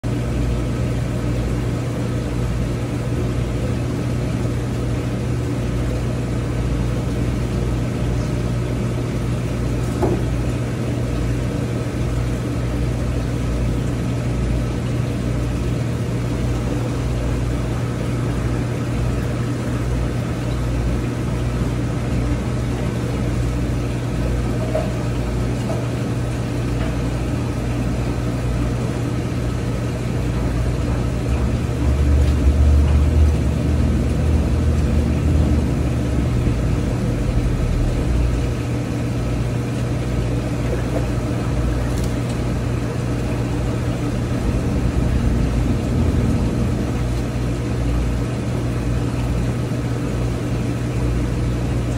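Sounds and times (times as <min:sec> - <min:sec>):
low electrical hum: 0:00.0 - 0:51.9
uneven rumble: 0:31.2 - 0:38.7, 0:42.1 - 0:48.9.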